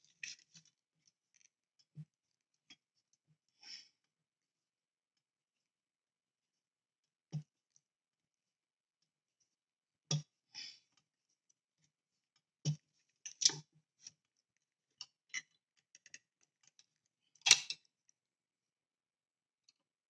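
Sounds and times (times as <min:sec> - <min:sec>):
model parts clicking and knocking: 0:15.0 - 0:17.9.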